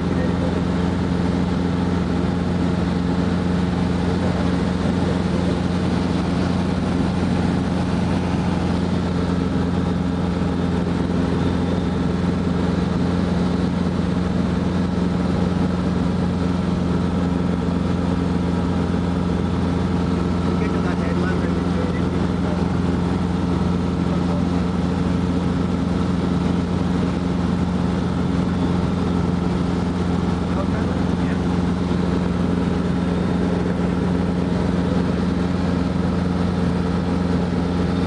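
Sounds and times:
helicopter engine and rotors droning: 0:00.0 - 0:38.0.

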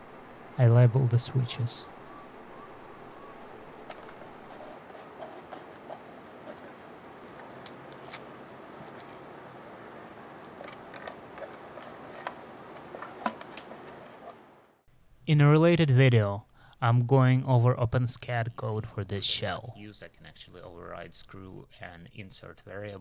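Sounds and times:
cooling fan rushing: 0:00.0 - 0:14.7.

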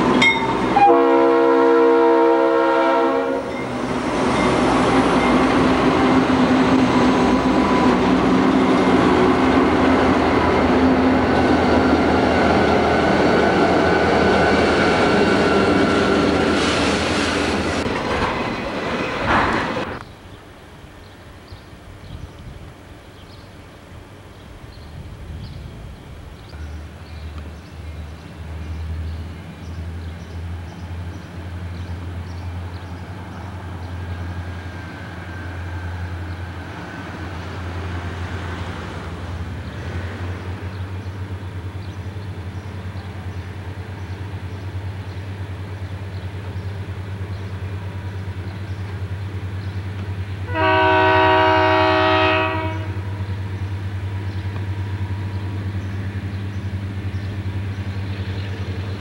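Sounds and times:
locomotive air horn: 0:00.0 - 0:03.6, 0:50.5 - 0:53.2
diesel locomotive engine drone: 0:00.0 - 0:59.0.

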